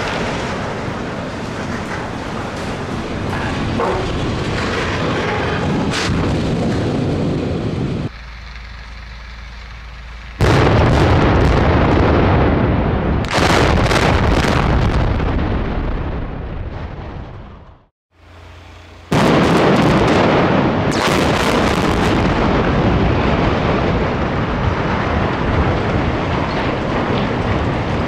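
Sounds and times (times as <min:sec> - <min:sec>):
smokestack collapse rumble: 0:00.0 - 0:17.9, 0:19.1 - 0:28.0
explosive charges blasting: 0:10.4 - 0:17.9, 0:19.1 - 0:28.0.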